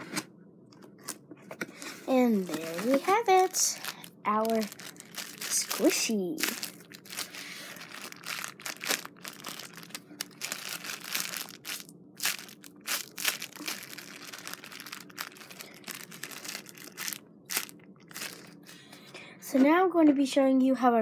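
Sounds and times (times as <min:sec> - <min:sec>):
plastic wrapper crinkling: 0:02.1 - 0:18.6.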